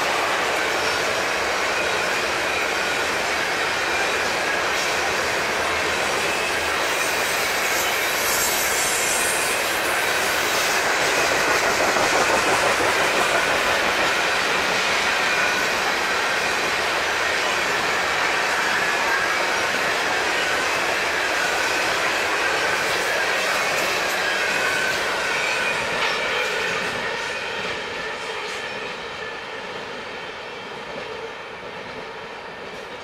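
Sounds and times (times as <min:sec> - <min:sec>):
train wheels rolling on rail: 0:00.0 - 0:33.0
high wheel squeal: 0:06.0 - 0:16.9.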